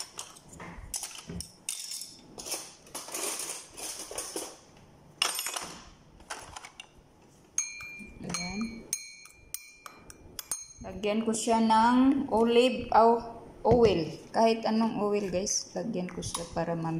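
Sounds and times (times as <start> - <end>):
spoon clinking against ceramic bowl: 7.6 - 11.0.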